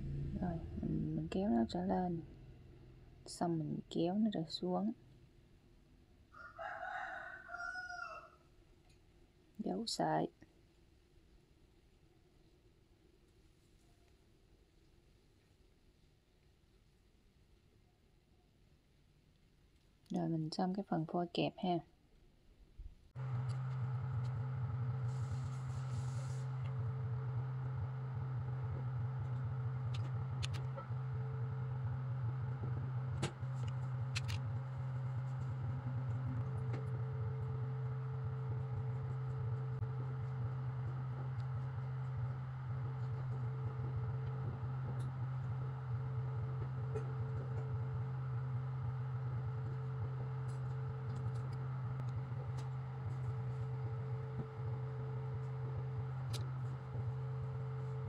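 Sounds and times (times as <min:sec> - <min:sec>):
low hum: 0:00.0 - 0:05.9, 0:23.1 - 0:58.0.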